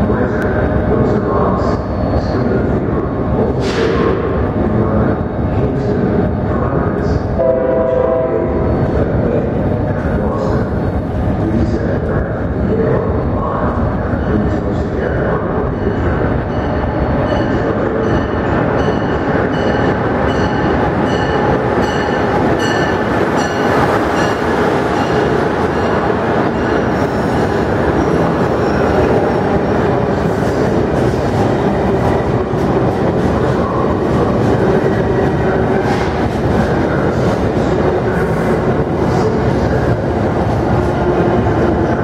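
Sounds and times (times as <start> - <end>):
train wheels rumbling on rails: 0.0 - 42.0
rail clacks and squeals: 0.3 - 4.5, 13.6 - 42.0.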